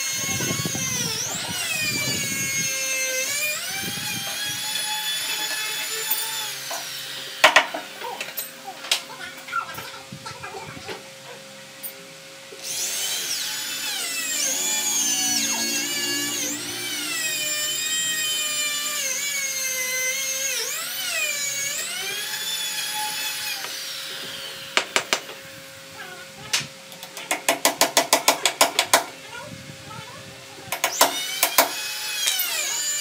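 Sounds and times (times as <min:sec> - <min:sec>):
electric drill whining: 0:00.0 - 0:08.1, 0:12.5 - 0:25.6, 0:30.7 - 0:33.0.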